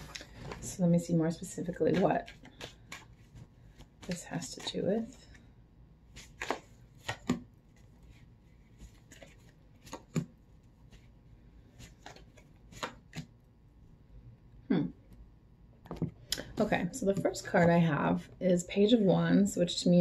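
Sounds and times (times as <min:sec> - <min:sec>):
cards shuffled and snapped: 0:06.1 - 0:07.4, 0:11.8 - 0:13.3.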